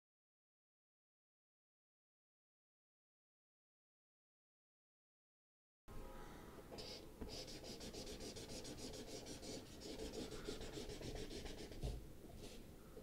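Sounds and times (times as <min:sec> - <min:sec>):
marker scribbling on paper: 0:06.8 - 0:12.6.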